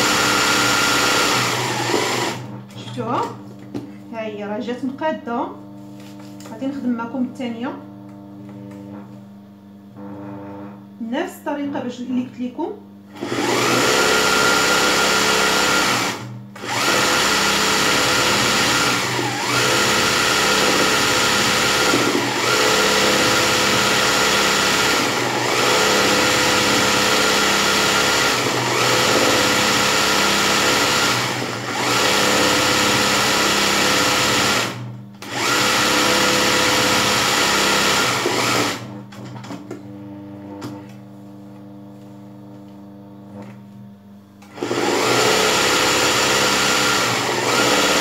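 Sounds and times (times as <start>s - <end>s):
sewing machine stitching: 0.0s - 2.9s, 13.2s - 39.3s, 44.5s - 48.0s.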